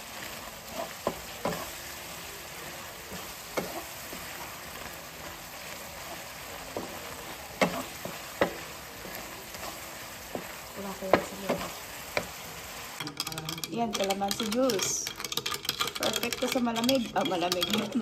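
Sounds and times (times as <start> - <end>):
shrimp sizzling in oil: 0.0 - 13.0.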